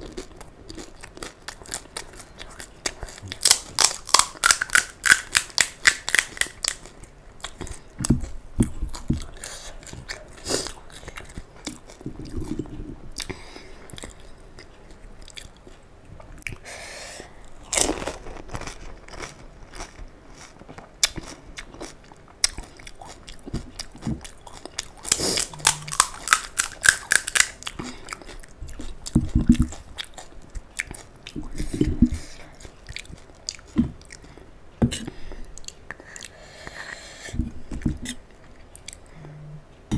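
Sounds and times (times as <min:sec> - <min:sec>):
wet chewing: 0:17.7 - 0:34.3
crisp shells crunching: 0:25.0 - 0:27.6.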